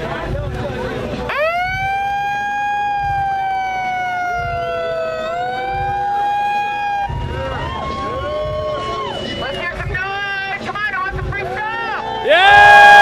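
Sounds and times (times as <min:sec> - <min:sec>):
megaphone siren tone: 0:01.3 - 0:08.3.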